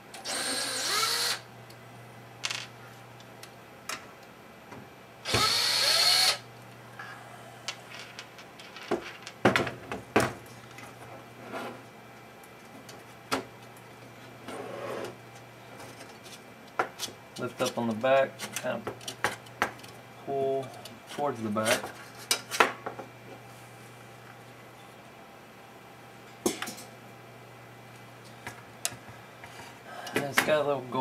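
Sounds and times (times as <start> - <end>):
cordless drill motor whine: 0.2 - 1.5, 5.2 - 6.5.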